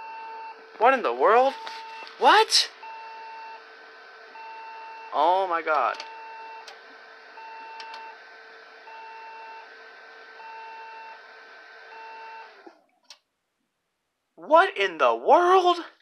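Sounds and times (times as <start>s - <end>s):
cooling fans whirring: 0.0s - 12.7s
long computer beeps: 1.3s - 3.6s, 4.4s - 6.7s, 7.4s - 8.2s, 8.9s - 9.6s.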